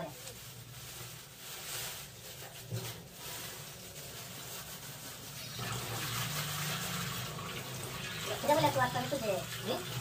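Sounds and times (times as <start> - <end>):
tap water running into sink: 5.4 - 10.0.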